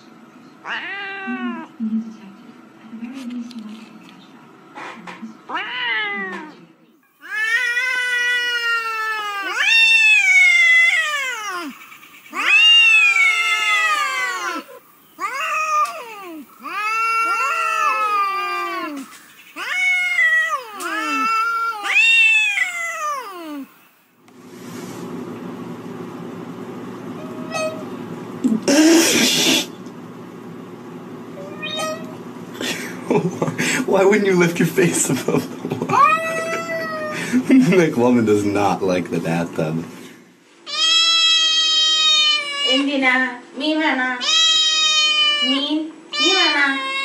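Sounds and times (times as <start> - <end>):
cat yowling: 0.6 - 1.8, 5.5 - 6.5, 7.2 - 23.8, 27.2 - 27.9, 31.4 - 32.1, 35.9 - 37.2, 40.7 - 43.0, 44.2 - 47.0
steady low hum: 8.8 - 40.5.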